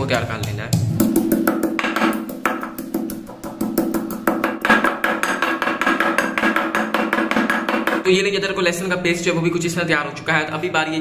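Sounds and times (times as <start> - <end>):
pestle pounding in a clay mortar: 0.2 - 8.1.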